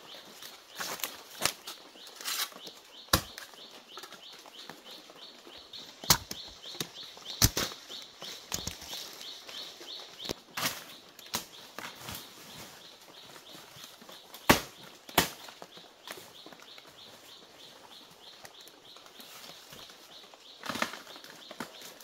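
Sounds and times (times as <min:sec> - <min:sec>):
dry leaves rustling and crackling: 0:00.0 - 0:17.4
stalks snapping: 0:00.8 - 0:04.2, 0:06.0 - 0:09.2, 0:10.2 - 0:11.9.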